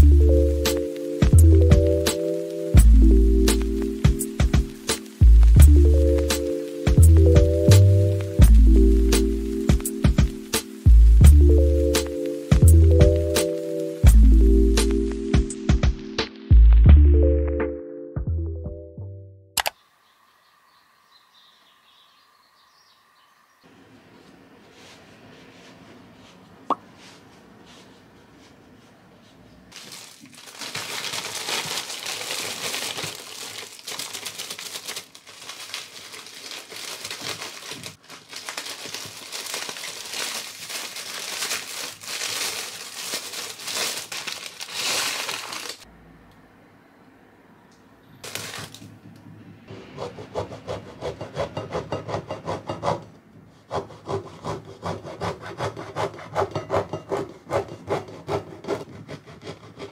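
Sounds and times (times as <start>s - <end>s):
plastic bag crinkling: 29.7s - 45.9s, 48.2s - 48.9s
bread knife sawing loaf: 50.0s - 59.9s.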